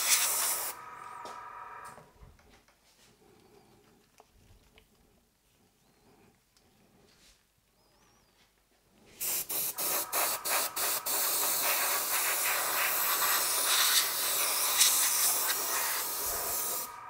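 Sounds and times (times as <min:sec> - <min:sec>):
airbrush spraying: 0:00.0 - 0:00.8, 0:09.2 - 0:17.0.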